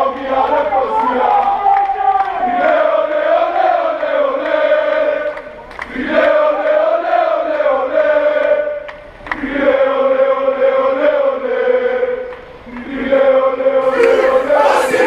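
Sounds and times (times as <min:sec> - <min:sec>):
group singing a chant: 0:02.5 - 0:15.0
crowd noise: 0:13.8 - 0:15.0.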